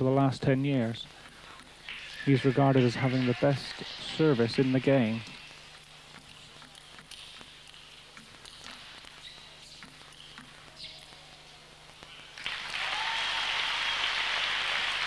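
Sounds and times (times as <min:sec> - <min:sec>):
crowd applause: 0:02.2 - 0:04.9, 0:12.3 - 0:15.0.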